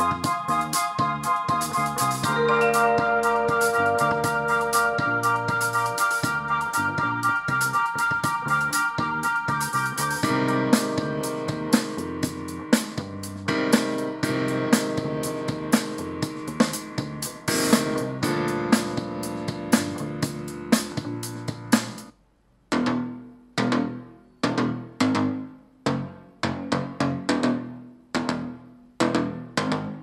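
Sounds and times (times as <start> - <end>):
music from small speaker: 0.0 - 22.1.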